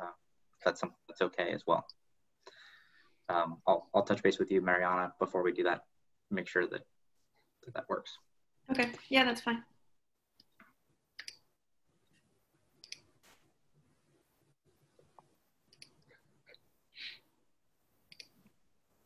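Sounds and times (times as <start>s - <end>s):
faint clicks: 18.1s - 18.6s.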